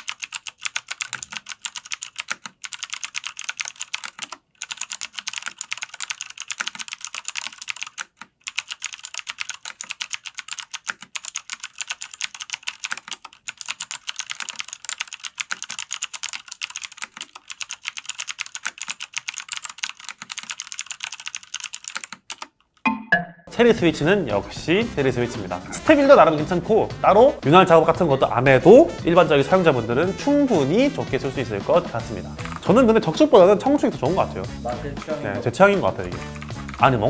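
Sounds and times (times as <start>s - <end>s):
mechanical keyboard typing: 0.0s - 22.6s, 32.4s - 32.8s, 36.0s - 37.0s.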